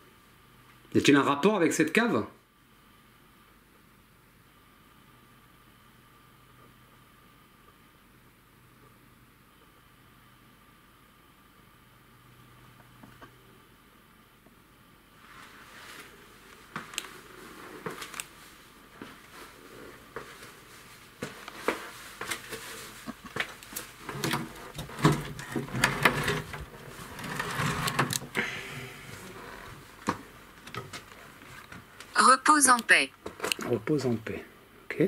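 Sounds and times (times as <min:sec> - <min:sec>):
rustling: 0:15.2 - 0:30.2.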